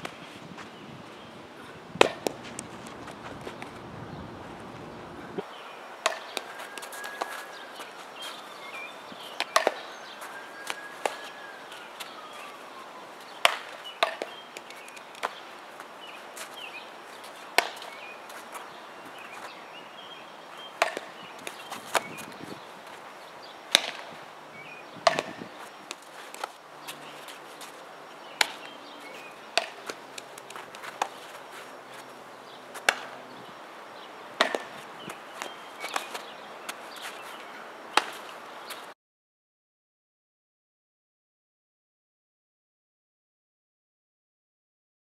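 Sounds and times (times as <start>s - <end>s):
outdoor hiss: 0.0s - 38.9s
faint chirps: 0.7s - 15.3s
balls popping into gloves: 1.9s - 5.4s, 20.8s - 22.6s, 25.0s - 27.4s, 29.6s - 31.2s, 32.8s - 33.2s, 34.4s - 37.1s
bat hitting softballs: 1.9s - 5.4s, 6.0s - 7.4s, 9.4s - 9.9s, 10.6s - 11.3s, 13.4s - 15.4s, 17.5s - 18.0s, 20.8s - 22.6s, 23.7s - 24.2s, 25.0s - 31.6s, 32.7s - 33.2s, 34.4s - 36.8s, 37.9s - 38.3s.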